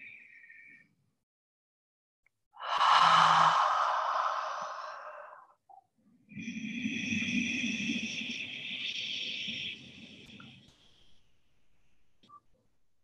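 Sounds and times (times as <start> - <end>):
airy breathing: 2.6 - 5.5.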